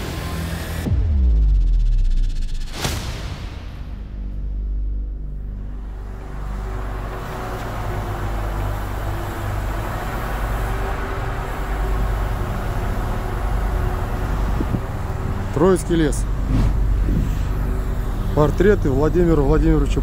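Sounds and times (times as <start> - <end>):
low outdoor rumble: 4.9 - 20.0.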